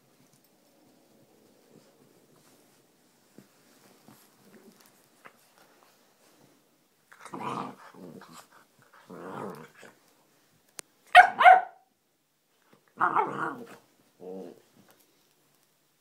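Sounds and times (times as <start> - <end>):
dog play-growling: 7.1 - 10.0, 13.0 - 14.8
sharp dog barks: 11.1 - 11.9.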